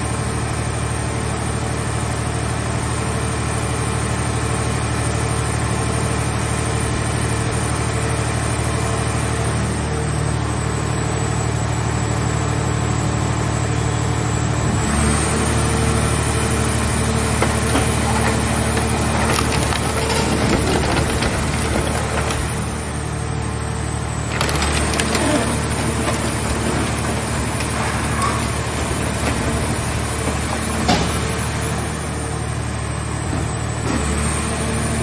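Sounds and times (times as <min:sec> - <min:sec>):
hydraulic baler humming: 0:05.6 - 0:35.0
sheet metal creaking and crackling: 0:24.3 - 0:31.1.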